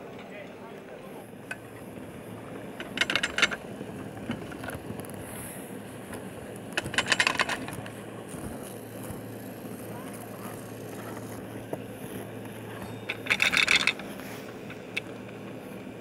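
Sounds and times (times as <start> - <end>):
ski lift low rumble: 0.0 - 16.0
rapid metallic clicking and rattling: 2.7 - 5.2, 6.1 - 8.0, 12.7 - 15.5.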